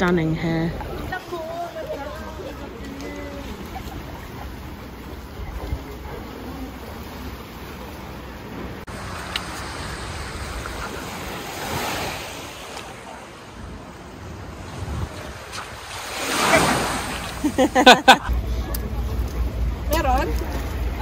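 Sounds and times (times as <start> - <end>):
small waves washing on beach: 0.3 - 17.8
wind noise on microphone: 14.4 - 16.1.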